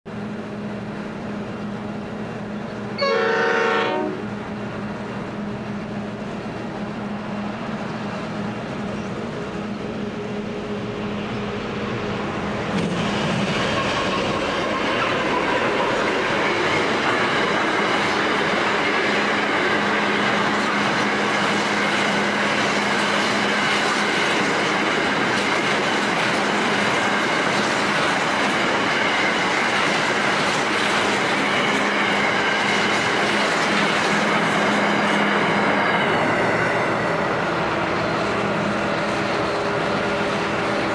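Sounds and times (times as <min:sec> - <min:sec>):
freight train wagons rolling: 0:12.4 - 0:40.9.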